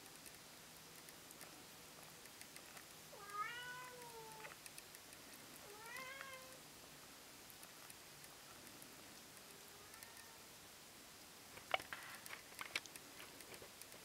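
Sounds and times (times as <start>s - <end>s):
cat meowing: 3.2s - 4.5s, 5.7s - 6.6s, 9.8s - 10.5s.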